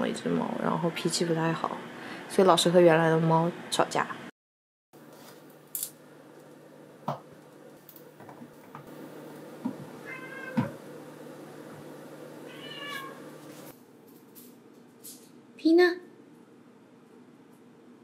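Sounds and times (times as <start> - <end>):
cat meowing: 10.0 - 10.8, 12.4 - 13.2.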